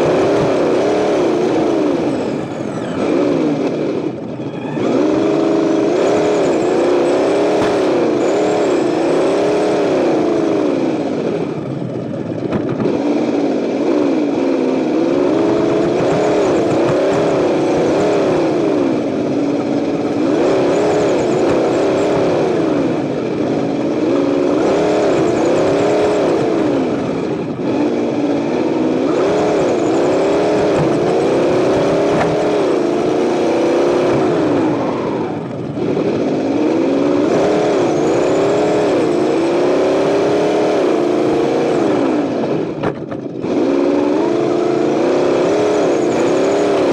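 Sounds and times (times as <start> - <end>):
simulated engine revving through speaker: 0.0 - 11.6, 12.8 - 42.8, 43.4 - 46.9.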